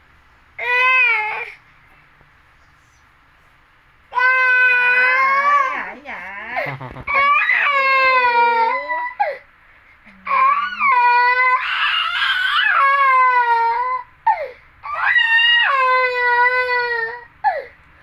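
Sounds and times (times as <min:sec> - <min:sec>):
toddler crying: 0:00.6 - 0:01.6, 0:07.1 - 0:09.4, 0:10.3 - 0:17.7.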